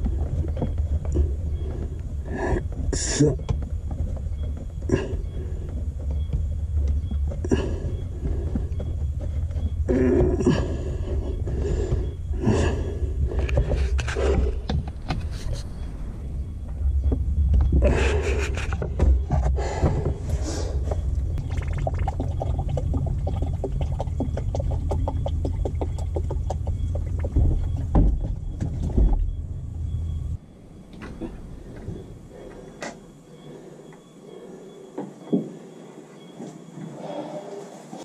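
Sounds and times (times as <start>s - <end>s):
truck engine rumbling: 0.0s - 33.6s
fine fast ticking: 21.0s - 27.9s.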